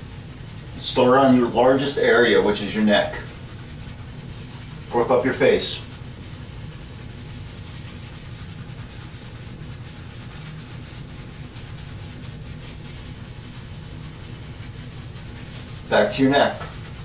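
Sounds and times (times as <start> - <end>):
low steady hum: 0.0 - 17.0
shaving brush scrubbing beard: 0.0 - 17.0.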